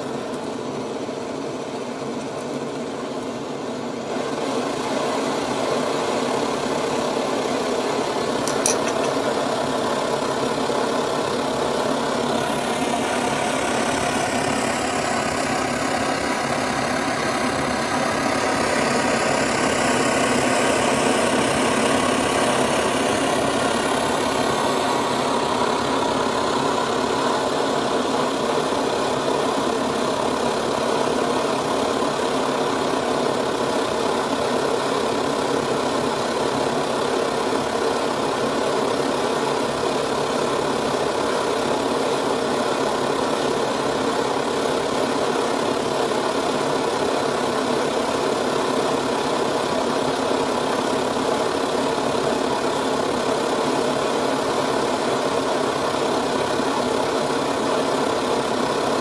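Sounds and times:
stove burner rushing: 0.0s - 34.5s.

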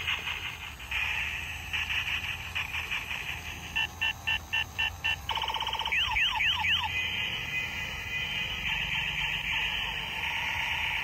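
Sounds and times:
toy gun high beeps: 5.3s - 6.9s.

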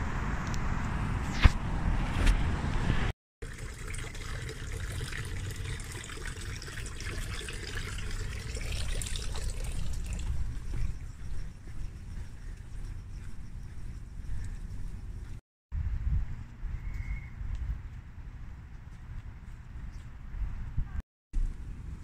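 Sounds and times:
water trickling into basin: 3.4s - 11.3s.

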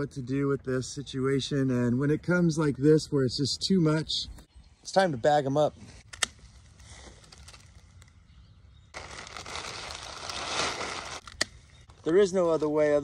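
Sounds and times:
plastic trash bag rustling: 9.0s - 11.4s.

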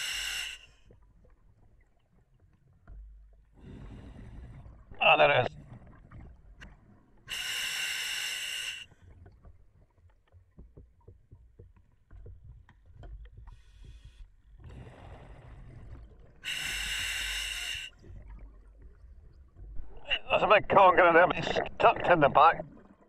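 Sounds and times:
hissing regulator breaths: 0.0s - 0.8s, 7.3s - 8.9s, 16.4s - 18.0s.

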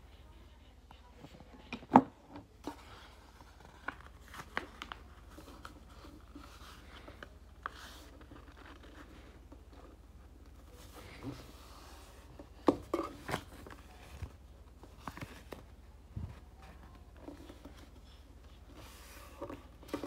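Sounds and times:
paper crackling and tapping: 2.6s - 11.4s.

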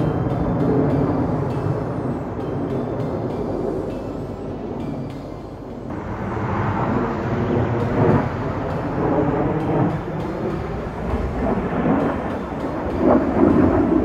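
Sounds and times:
jet roar: 0.0s - 14.0s.

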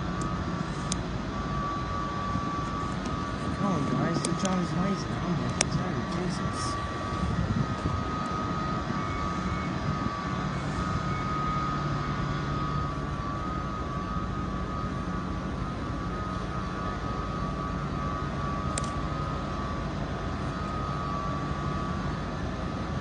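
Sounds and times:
high whine: 0.0s - 23.0s
low hum: 0.0s - 23.0s
single click: 18.7s - 19.0s.

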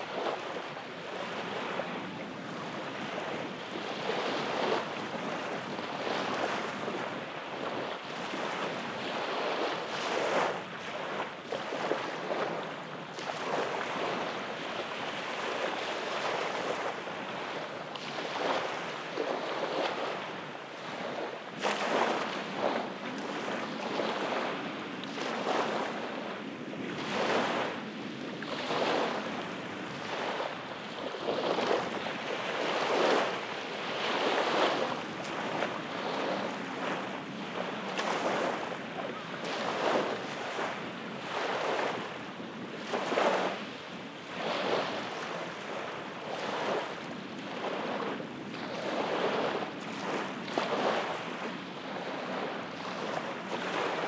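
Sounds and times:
waves lapping on sandy shore: 0.0s - 54.0s.

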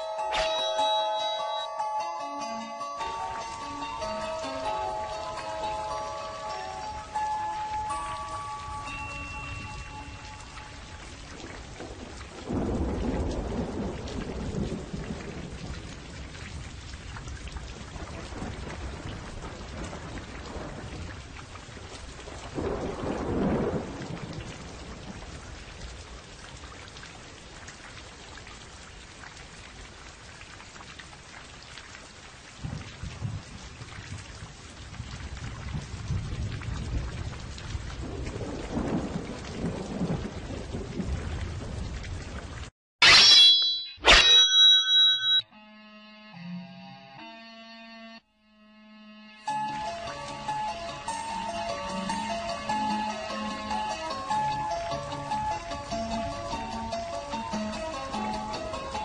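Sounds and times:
steady rain: 3.0s - 42.7s, 49.5s - 59.0s
thunder rolling: 9.5s - 26.2s, 32.6s - 42.7s.

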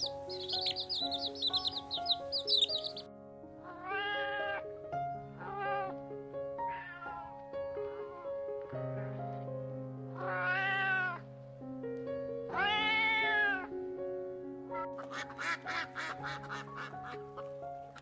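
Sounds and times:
cat chirps: 0.0s - 3.0s, 3.7s - 4.6s, 5.4s - 6.0s
background music: 0.0s - 18.0s
cat meowing: 3.6s - 4.7s, 5.4s - 6.0s, 6.6s - 7.4s, 10.1s - 11.2s, 12.5s - 13.7s.

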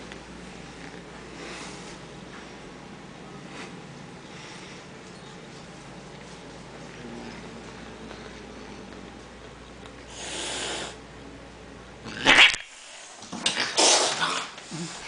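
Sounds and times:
cat hissing: 10.1s - 11.0s, 13.5s - 15.0s
cat spitting: 12.1s - 12.7s, 13.5s - 14.5s.

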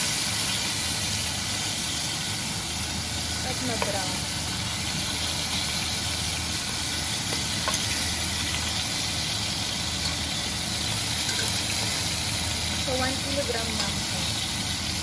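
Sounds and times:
meat sizzling in oil: 0.0s - 15.0s
metal tongs clicking on pot: 7.3s - 8.8s, 9.9s - 10.3s, 11.2s - 12.0s, 13.7s - 14.2s.

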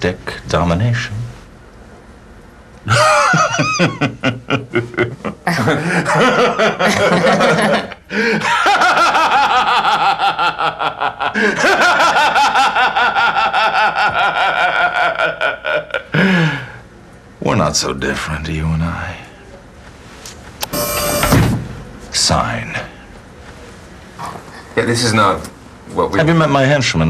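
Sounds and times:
man and woman laughing: 2.9s - 16.4s.

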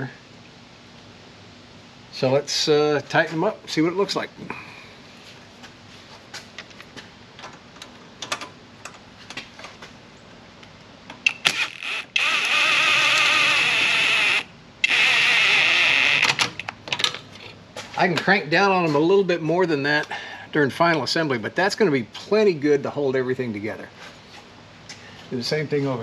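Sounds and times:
handheld power tool running: 11.3s - 16.2s.

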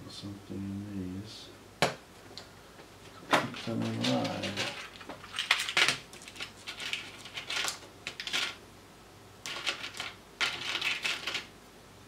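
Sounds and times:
plastic and metal parts rattling: 3.4s - 8.6s.

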